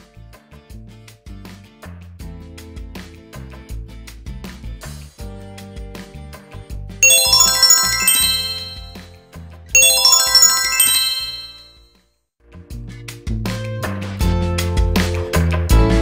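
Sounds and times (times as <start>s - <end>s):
bright chiming flourish: 7.0s - 9.1s, 9.8s - 11.8s.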